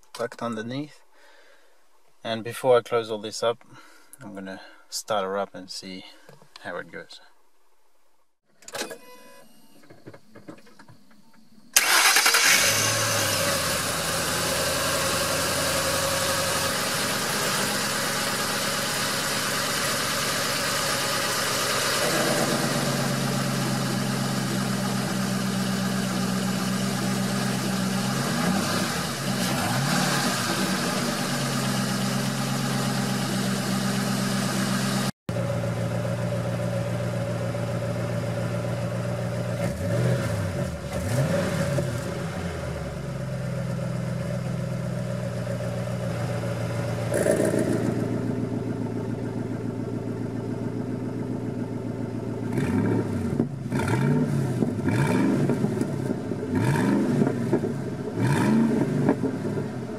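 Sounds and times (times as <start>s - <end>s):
exhaust valves opening: 11.8s - 12.9s
car engine idling and revving: 11.8s - 59.9s.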